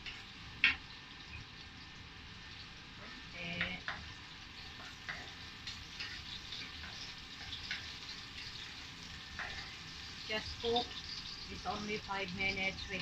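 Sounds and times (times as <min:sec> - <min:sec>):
spatula scraping and tapping wok: 0:00.0 - 0:01.0, 0:03.0 - 0:11.8
vegetables sizzling in oil: 0:00.0 - 0:13.0.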